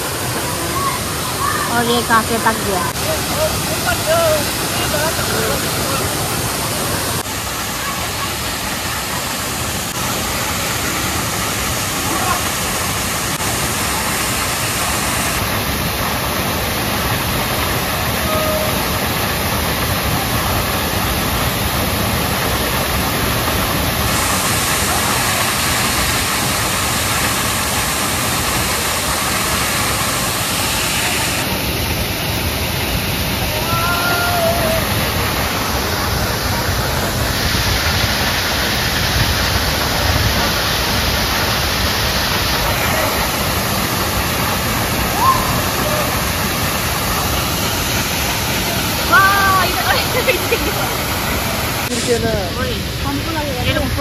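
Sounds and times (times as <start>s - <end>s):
waterfall rushing: 0.0s - 54.0s
distant shouts: 33.4s - 35.2s, 45.0s - 46.5s.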